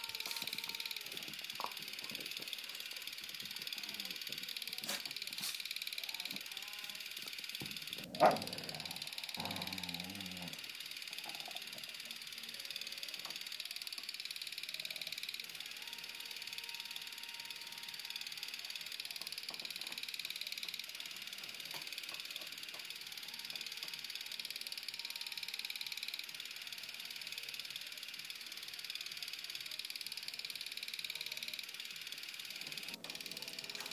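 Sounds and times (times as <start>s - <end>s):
film camera whirring and ticking: 0.0s - 33.9s
dog growling: 8.0s - 10.6s.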